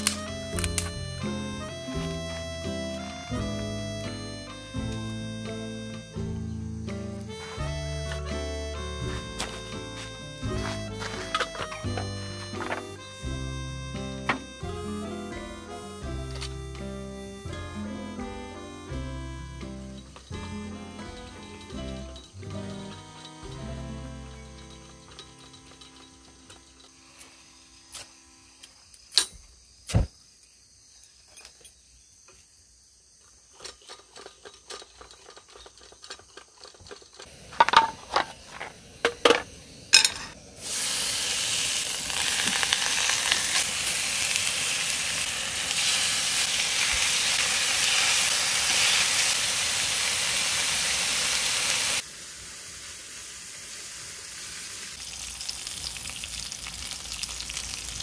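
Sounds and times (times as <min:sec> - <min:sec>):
stove and pan clicks and knocks: 0:33.6 - 0:40.4
meat sizzling in a frying pan: 0:40.6 - 0:58.0.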